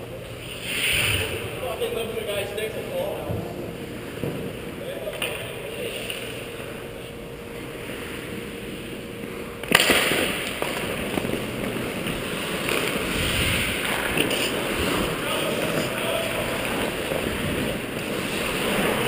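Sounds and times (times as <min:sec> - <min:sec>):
arena hum: 0:00.0 - 0:19.0
hockey sticks clacking: 0:05.1 - 0:06.8, 0:09.6 - 0:19.0
skate blades scraping ice: 0:09.7 - 0:19.0.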